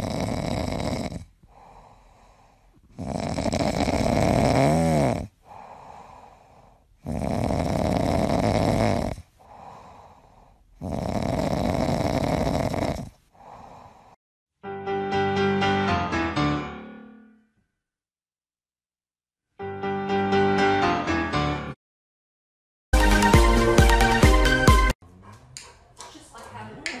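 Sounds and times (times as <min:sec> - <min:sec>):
whistling snore: 0:00.0 - 0:01.2, 0:07.0 - 0:09.2, 0:10.8 - 0:13.1
dog snoring: 0:00.0 - 0:14.2.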